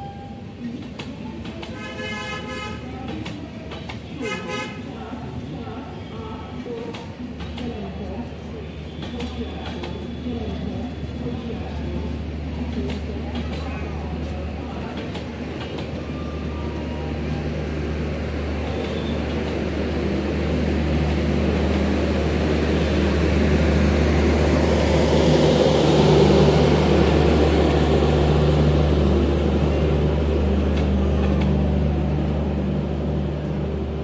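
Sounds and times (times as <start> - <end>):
train wheels clattering on rails: 3.0 - 4.2.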